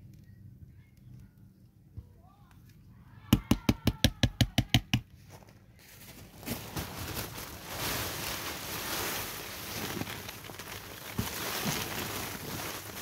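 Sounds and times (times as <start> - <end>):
shredded cardboard pouring from bag: 6.1 - 13.0.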